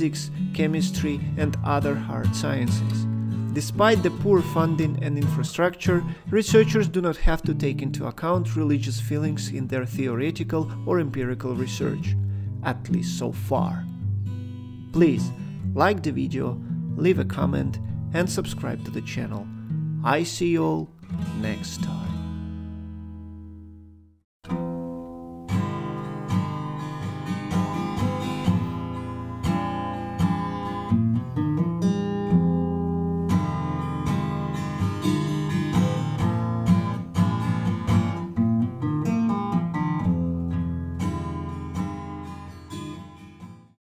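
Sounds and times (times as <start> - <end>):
acoustic guitar plucking: 0.0 - 43.8.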